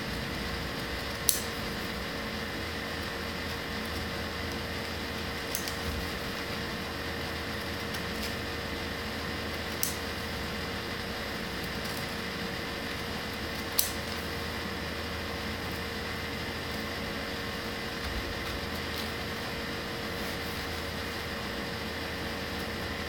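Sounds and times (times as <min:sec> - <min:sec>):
background hum and hiss: 0:00.0 - 0:23.0
scissors snipping paper: 0:01.2 - 0:01.8, 0:03.8 - 0:06.6, 0:13.5 - 0:14.3.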